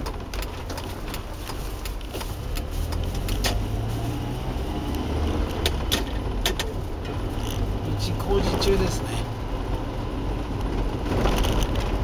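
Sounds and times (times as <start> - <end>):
truck engine droning: 0.0 - 12.0
body and suspension clunks: 5.5 - 7.7.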